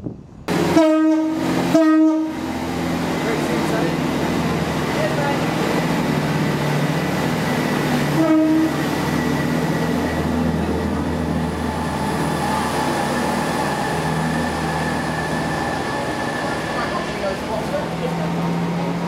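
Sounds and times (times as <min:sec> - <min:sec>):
diesel train engine humming: 0:00.1 - 0:19.0
train horn toot: 0:00.7 - 0:02.4, 0:08.1 - 0:09.0.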